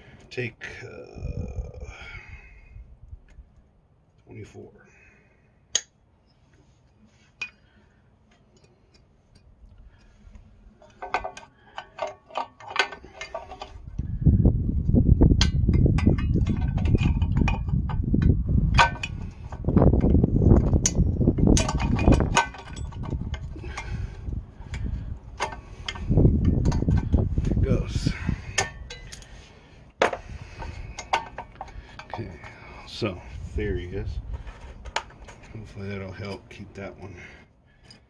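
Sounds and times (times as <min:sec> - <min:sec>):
heavy uneven low rumble: 0:00.8 - 0:03.6, 0:13.5 - 0:36.8
vise grips clinking on metal: 0:10.8 - 0:13.8, 0:15.4 - 0:19.6, 0:20.6 - 0:27.2, 0:28.0 - 0:29.4, 0:30.0 - 0:33.1.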